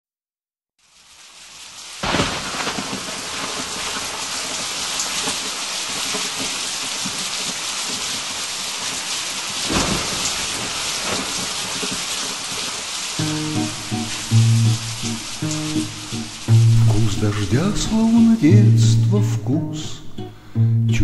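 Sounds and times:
rain falling: 0:00.8 - 0:20.9
thunder: 0:02.0 - 0:18.3.

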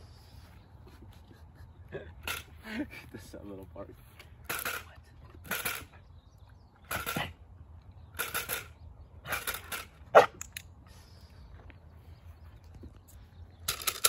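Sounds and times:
clatter stick rattling: 0:08.2 - 0:10.0, 0:13.6 - 0:14.0.

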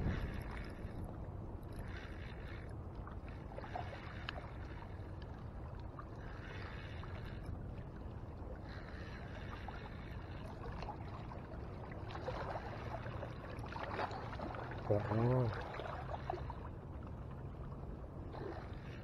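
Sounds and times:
wind on microphone: 0:00.0 - 0:03.8.

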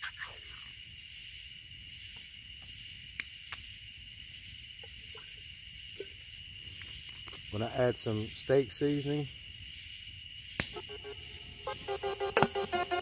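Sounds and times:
crickets chirping: 0:00.0 - 0:13.0
campfire crackling: 0:00.7 - 0:13.0
sharp clicks: 0:11.7 - 0:13.0.

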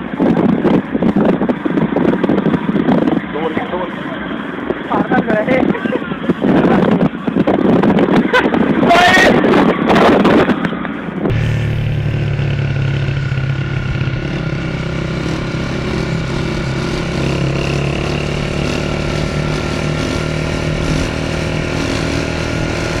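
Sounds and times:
motorcycle engine running: 0:11.3 - 0:23.0.

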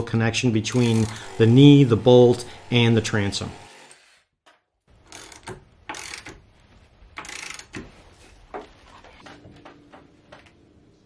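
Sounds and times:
cordless drill bursts: 0:00.6 - 0:04.2
tool handling clicks and knocks: 0:07.1 - 0:10.6.

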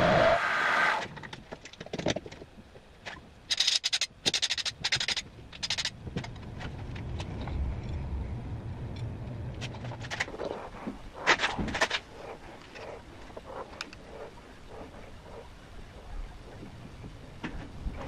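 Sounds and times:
low steady hum: 0:00.0 - 0:18.0
metal tooling clicks: 0:03.5 - 0:06.4.

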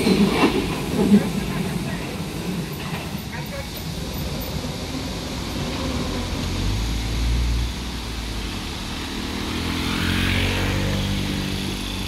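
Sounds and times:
scooter and car engines: 0:04.7 - 0:12.0
motorcycle engine accelerating: 0:06.0 - 0:12.0.

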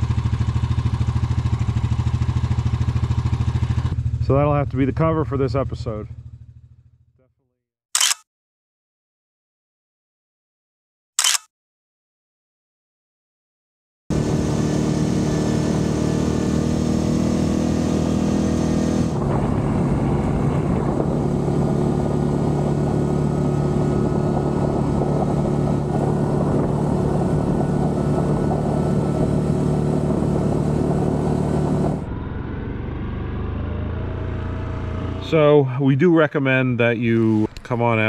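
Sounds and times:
atv engine running: 0:00.0 - 0:07.1, 0:14.1 - 0:35.6.

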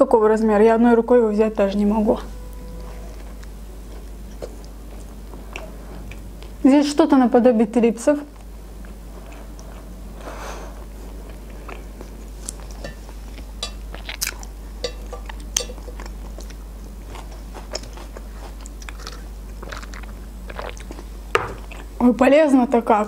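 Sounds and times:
chewing crunchy food: 0:03.1 - 0:06.6, 0:08.3 - 0:22.0.

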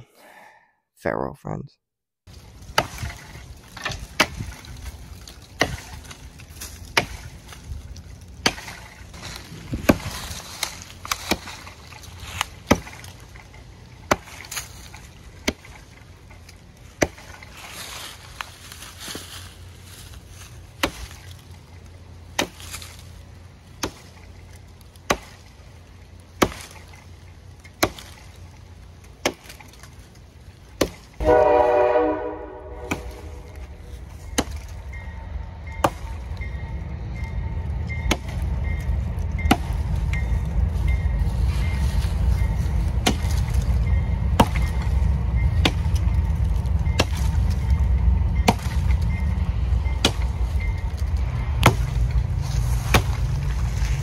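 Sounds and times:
low steady rumble: 0:02.3 - 0:54.0
axe chopping tree trunk: 0:02.7 - 0:07.6, 0:08.4 - 0:16.0, 0:17.0 - 0:17.4, 0:20.7 - 0:21.4, 0:22.3 - 0:23.0, 0:23.7 - 0:25.6, 0:26.3 - 0:27.0, 0:27.6 - 0:28.4, 0:29.1 - 0:30.0, 0:30.6 - 0:31.2, 0:32.8 - 0:33.6, 0:34.3 - 0:34.8, 0:35.8 - 0:36.2, 0:38.1 - 0:38.4, 0:39.5 - 0:39.8, 0:43.0 - 0:43.6, 0:44.4 - 0:44.8, 0:45.6 - 0:46.0, 0:47.0 - 0:47.4, 0:48.4 - 0:49.0, 0:50.0 - 0:50.4, 0:51.6 - 0:54.0.

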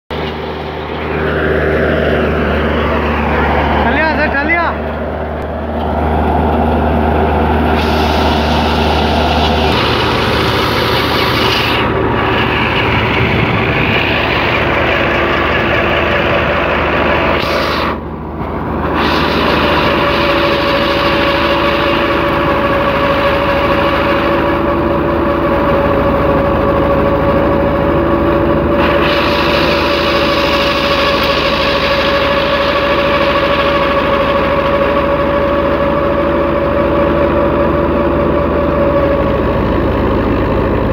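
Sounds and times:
tractor diesel engine: 0:00.0 - 0:40.9
steady mechanical whine: 0:00.1 - 0:40.9
threshing machine running: 0:00.1 - 0:40.9.

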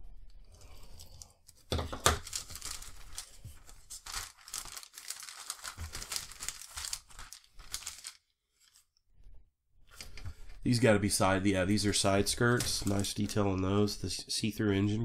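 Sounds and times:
plastic bag crinkling: 0:00.8 - 0:08.9, 0:11.9 - 0:13.6.

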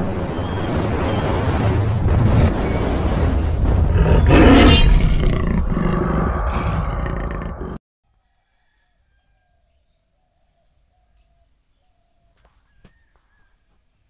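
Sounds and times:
big cat growling and roaring: 0:03.8 - 0:07.8.

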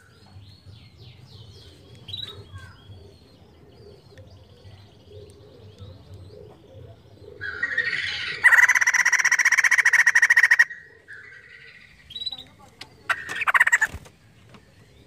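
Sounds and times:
bird cackling calls: 0:07.2 - 0:12.3, 0:12.9 - 0:14.1.

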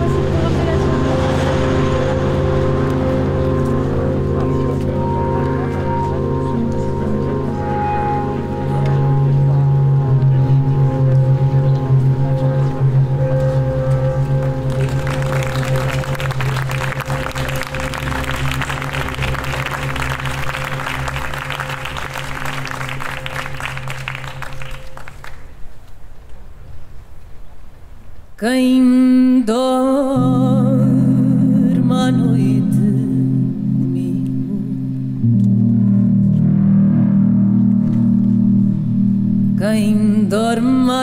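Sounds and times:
higher synthesizer tones: 0:00.0 - 0:25.2, 0:32.4 - 0:41.0
low analog synthesizer drone: 0:00.0 - 0:25.6, 0:30.0 - 0:41.0
audience applauding: 0:14.4 - 0:25.8.

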